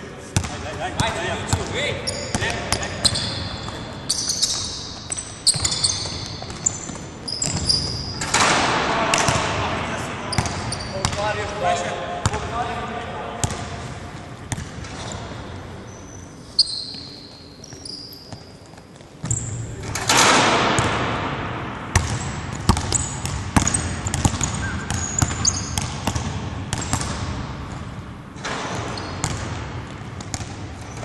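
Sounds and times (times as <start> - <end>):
sneakers squeaking: 0.2 - 11.4, 13.4 - 21.1, 21.9 - 31.0
basketballs bouncing on wooden floor: 0.4 - 9.7, 10.3 - 11.3, 13.4 - 13.8, 14.5 - 15.2, 20.2 - 31.0.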